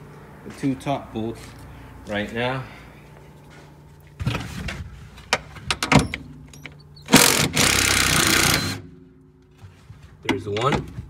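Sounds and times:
impact wrench hammering: 7.1s - 8.9s.

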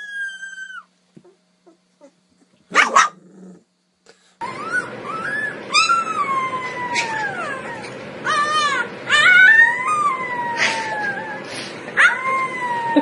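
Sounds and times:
puppy howling: 0.0s - 0.9s, 4.4s - 13.0s
puppy yipping: 4.4s - 11.4s, 12.0s - 13.0s.

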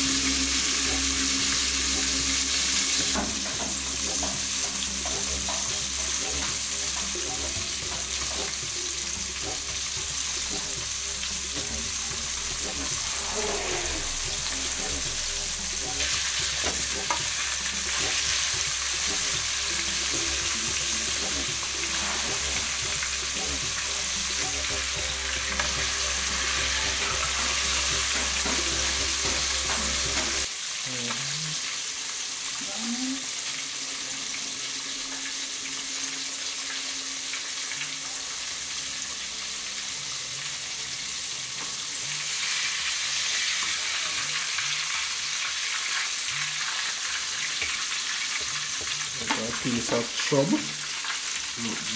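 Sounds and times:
fish sizzling in hot oil: 0.0s - 51.9s.

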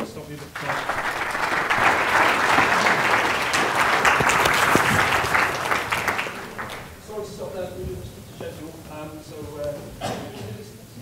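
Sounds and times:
audience applauding: 0.6s - 7.2s.

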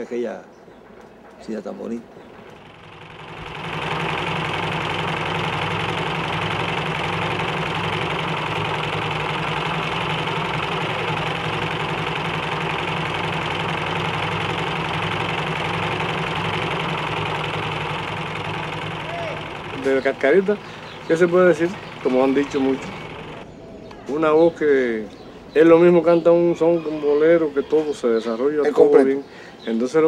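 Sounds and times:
motor-driven machine droning: 2.3s - 23.5s.

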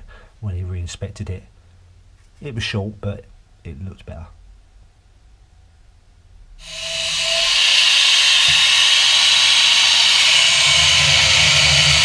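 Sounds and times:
angle grinder running: 6.6s - 12.0s.

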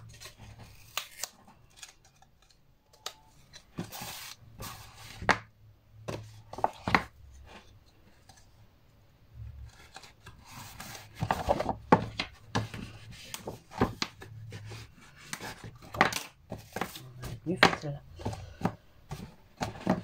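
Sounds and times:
paper and card rustling: 0.0s - 5.3s, 9.6s - 20.0s.

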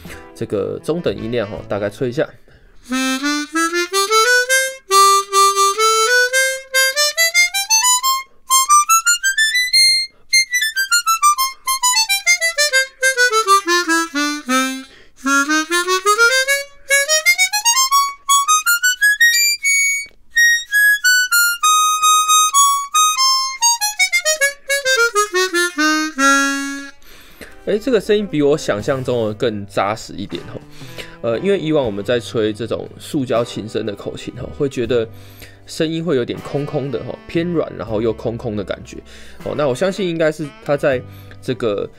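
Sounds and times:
harmonica playing scales: 0.0s - 2.0s, 2.8s - 28.7s, 36.4s - 39.5s.

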